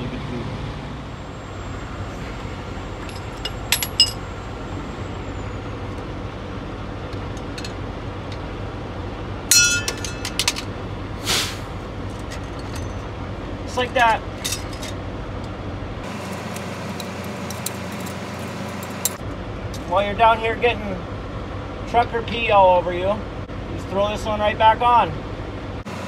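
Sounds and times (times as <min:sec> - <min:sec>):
low traffic hum: 0:00.0 - 0:26.0
metal tool clinks: 0:03.0 - 0:04.2, 0:09.5 - 0:10.6
ringing metallic clank: 0:03.0 - 0:04.3, 0:09.5 - 0:10.6
short rasping burst: 0:11.2 - 0:11.7.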